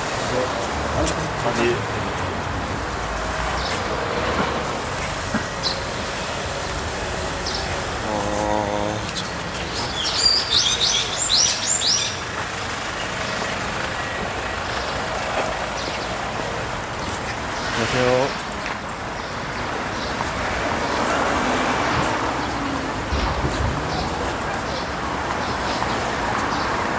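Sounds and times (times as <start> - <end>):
background traffic noise: 0.0 - 26.9
high bird chirps: 9.2 - 12.2.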